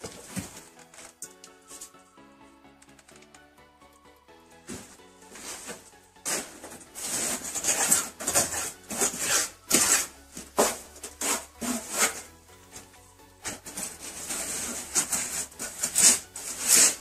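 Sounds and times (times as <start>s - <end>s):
quiet background music: 0.0s - 17.0s
rasping scraping strokes: 4.7s - 12.4s, 13.4s - 17.0s.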